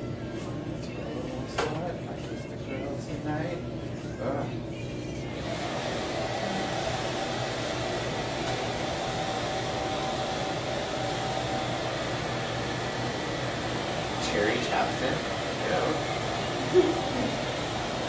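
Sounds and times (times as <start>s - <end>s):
electric blower motor whining: 5.3s - 18.0s.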